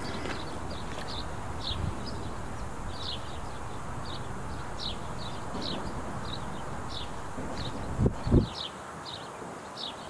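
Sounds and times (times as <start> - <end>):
bird chirping: 0.0 - 10.0
steady background hiss: 0.0 - 10.0.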